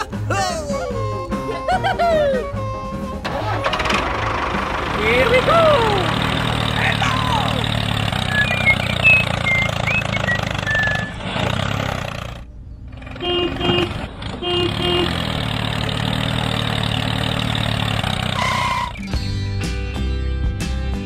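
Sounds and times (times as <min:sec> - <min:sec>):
diesel tractor engine running: 0:01.1 - 0:19.6
horn beeping: 0:13.0 - 0:15.4, 0:18.2 - 0:19.2.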